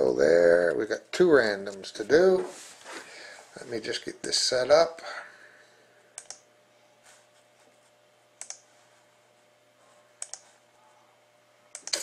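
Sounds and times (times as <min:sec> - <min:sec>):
computer mouse clicks: 0:06.2 - 0:06.4, 0:08.4 - 0:08.6, 0:10.2 - 0:10.5, 0:11.7 - 0:12.0.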